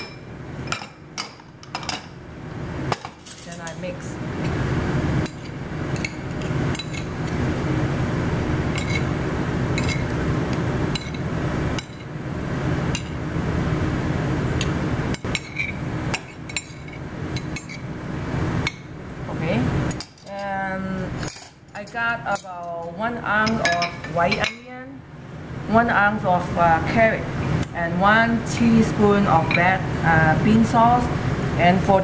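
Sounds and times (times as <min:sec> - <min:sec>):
steady hum: 0:00.0 - 0:32.0.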